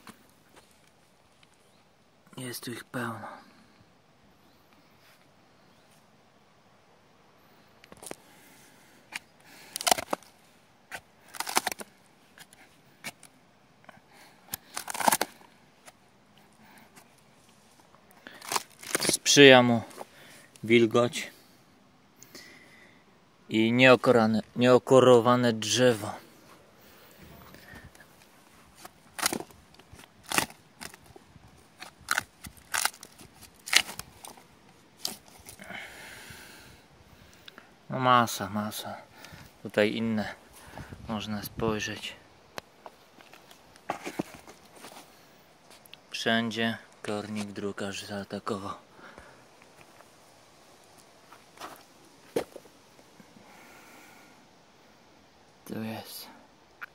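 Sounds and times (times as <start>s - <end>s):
bark cracking and tearing: 9.1s - 10.3s, 10.9s - 13.3s, 14.5s - 16.0s, 18.1s - 19.4s, 28.8s - 35.6s.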